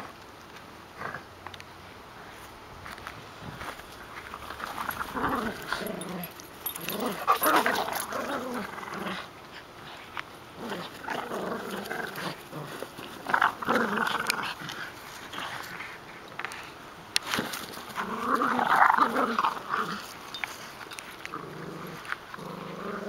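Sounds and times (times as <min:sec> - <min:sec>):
dogs growling in play: 0:00.9 - 0:01.4, 0:04.3 - 0:23.0.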